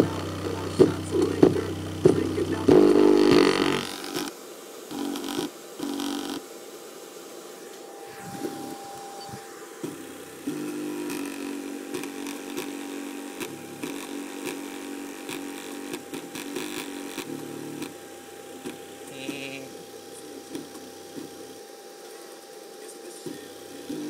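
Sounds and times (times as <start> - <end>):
steady whine: 0.0 - 24.0
crackling clicks: 0.8 - 6.3, 9.8 - 18.0.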